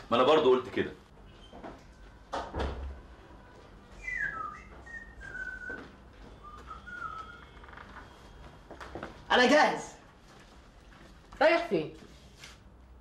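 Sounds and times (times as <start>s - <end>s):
person whistling a tune: 4.0s - 7.6s.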